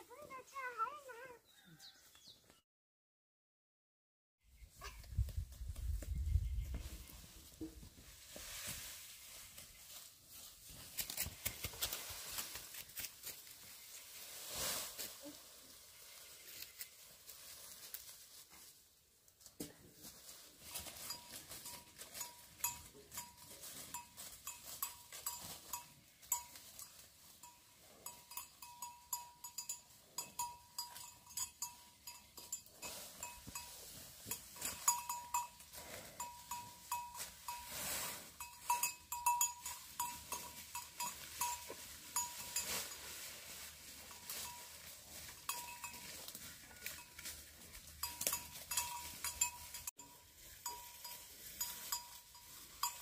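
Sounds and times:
grass rustling: 0:04.8 - 0:53.0
dry leaves crackling: 0:08.5 - 0:18.8
small bell tinkling: 0:21.0 - 0:37.8, 0:38.4 - 0:42.9, 0:45.4 - 0:53.0.

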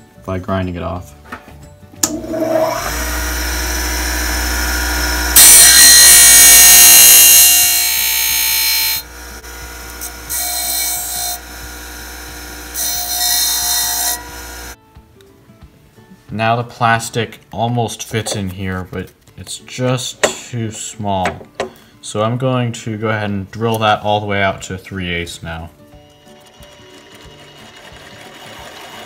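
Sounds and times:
disc sander motor whining: 0:02.0 - 0:14.8.

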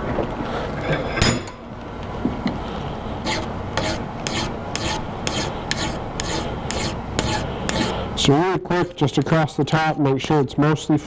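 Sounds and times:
hand file rasping on steel: 0:03.2 - 0:08.2.

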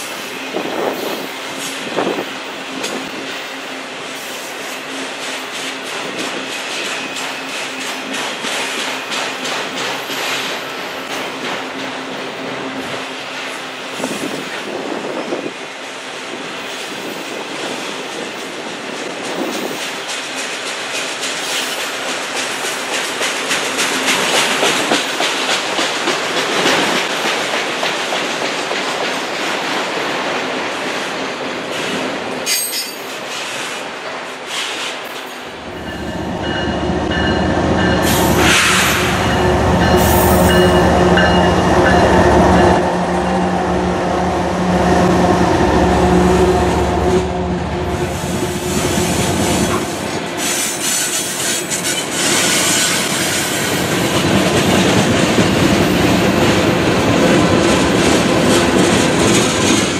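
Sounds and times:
train wheels clattering: 0:04.3 - 0:14.7, 0:18.0 - 0:33.8, 0:47.9 - 0:59.9.

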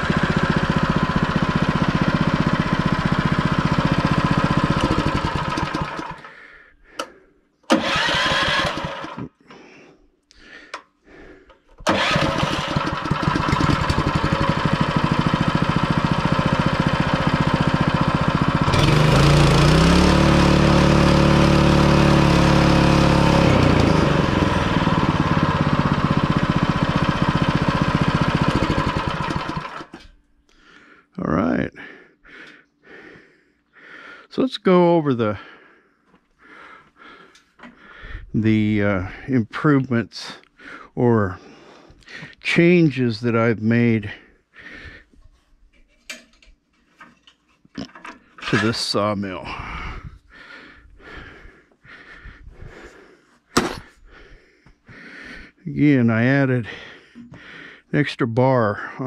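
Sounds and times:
gas engine running: 0:00.0 - 0:09.3, 0:11.4 - 0:30.1, 0:48.4 - 0:55.9.

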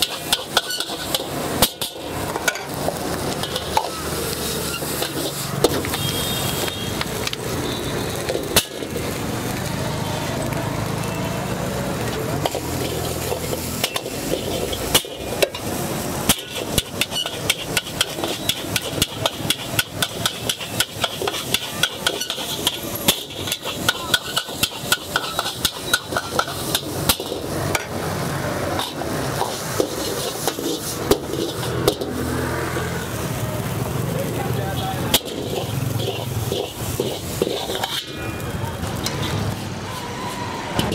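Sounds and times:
metal ladle clanging on wok: 0:00.0 - 0:04.0, 0:12.4 - 0:28.0, 0:34.7 - 0:38.2
stirring noise: 0:28.6 - 0:32.9, 0:34.7 - 0:38.2.

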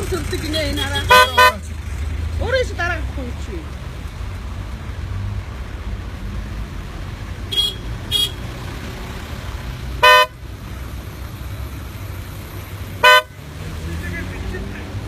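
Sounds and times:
car horns honking: 0:00.0 - 0:01.7, 0:07.5 - 0:08.6, 0:10.0 - 0:10.4, 0:13.0 - 0:13.4
idling traffic rumble: 0:00.0 - 0:15.0.

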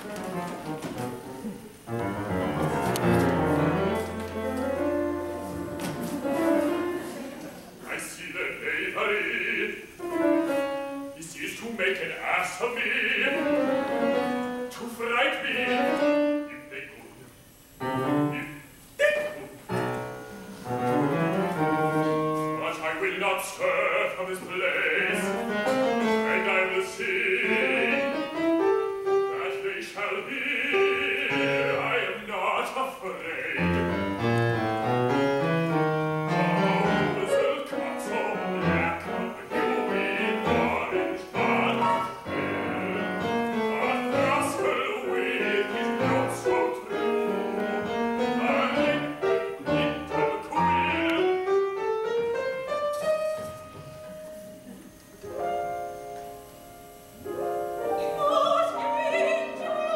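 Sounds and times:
piano playing quick runs and chords: 0:00.0 - 0:07.4, 0:13.3 - 0:15.0, 0:19.7 - 0:23.0, 0:24.9 - 0:32.1, 0:33.4 - 0:59.9.

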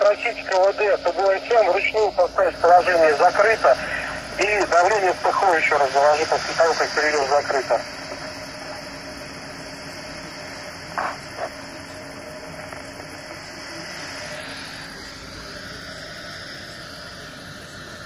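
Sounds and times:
radio hiss: 0:00.0 - 0:18.0
short radio blips: 0:11.0 - 0:11.5.

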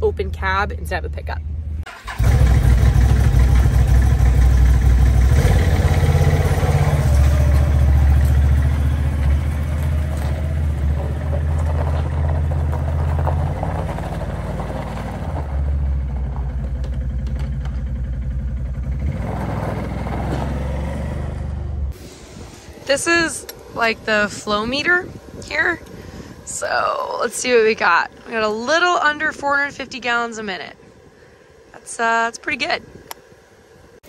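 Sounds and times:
atv engine revving: 0:01.9 - 0:22.0.

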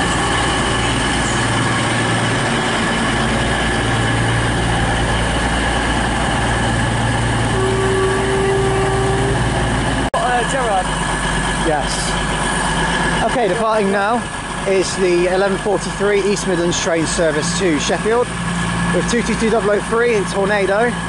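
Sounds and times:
steady tone: 0:00.0 - 0:14.0
diesel train engines humming: 0:00.0 - 0:21.0.

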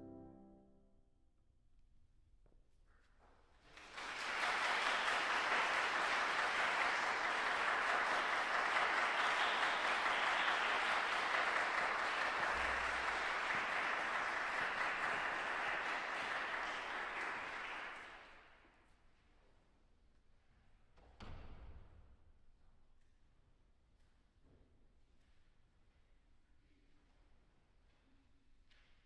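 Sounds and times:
audience applauding: 0:03.7 - 0:18.5.

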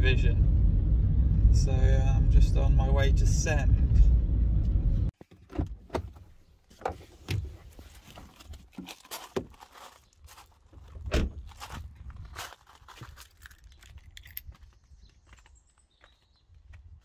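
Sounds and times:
car door being handled: 0:05.2 - 0:07.6, 0:11.0 - 0:11.4
footsteps on gravel: 0:07.7 - 0:17.0.

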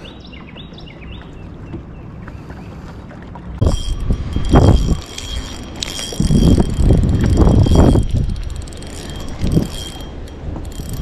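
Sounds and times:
fishing reel whirring and clicking: 0:03.6 - 0:11.0.

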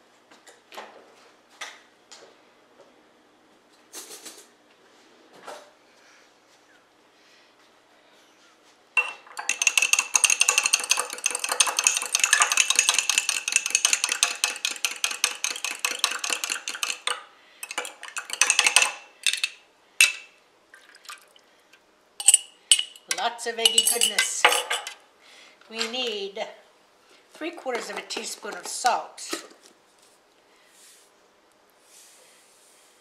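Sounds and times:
fork beating eggs in glass jar: 0:09.0 - 0:19.6, 0:23.6 - 0:24.9.

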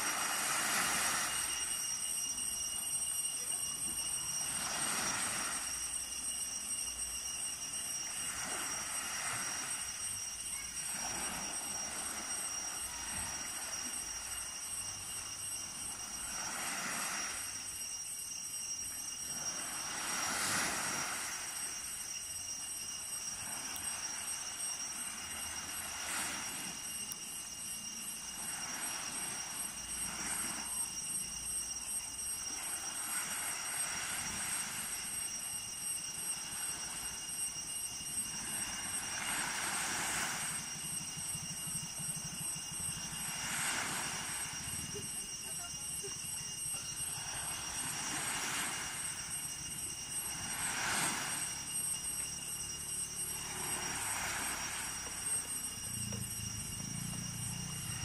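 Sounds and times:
small waves breaking on beach: 0:00.0 - 0:01.8, 0:03.5 - 0:06.2, 0:08.0 - 0:17.8, 0:18.8 - 0:22.1, 0:23.0 - 0:35.5, 0:36.1 - 0:58.0.

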